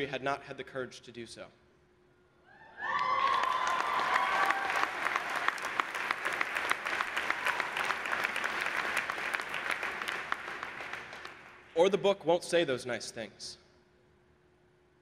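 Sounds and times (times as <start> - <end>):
whoops and cheers: 2.5 - 5.6, 7.2 - 8.1
audience clapping: 2.9 - 11.8.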